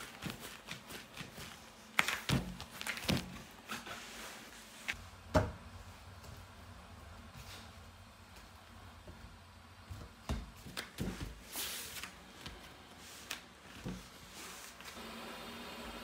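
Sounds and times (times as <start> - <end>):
dough thumping on table: 5.3 - 5.7.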